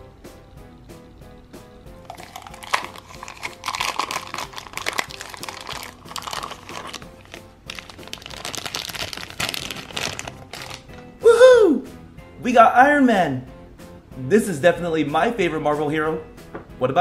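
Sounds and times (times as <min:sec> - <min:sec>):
background music: 0:00.0 - 0:17.0
plastic bag crinkling: 0:02.1 - 0:11.0.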